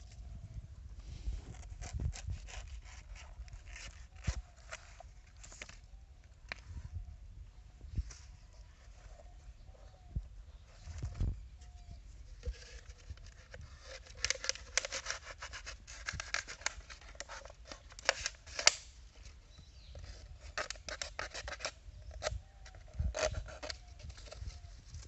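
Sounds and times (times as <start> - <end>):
knife cutting plastic bottle: 12.4 - 18.8, 23.0 - 24.6.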